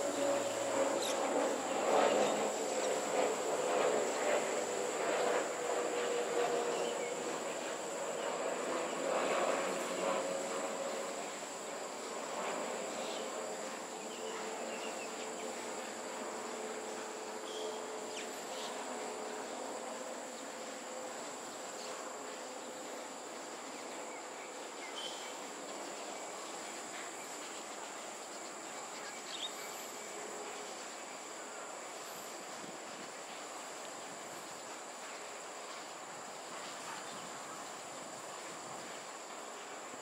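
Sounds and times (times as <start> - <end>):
distant aircraft rumble: 0.0 - 23.7
insects buzzing: 0.0 - 40.0.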